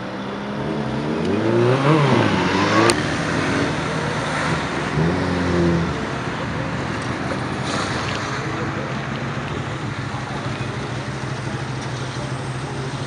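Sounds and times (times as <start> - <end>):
traffic noise: 0.0 - 13.0
car engines accelerating past: 0.3 - 9.5
engine revving: 0.5 - 6.1.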